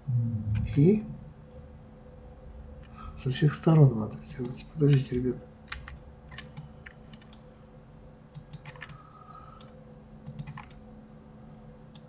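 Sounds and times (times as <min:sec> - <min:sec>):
faint steady hum: 0:00.0 - 0:12.0
keyboard and mouse clicking: 0:05.7 - 0:07.4, 0:08.4 - 0:09.0, 0:09.6 - 0:10.8.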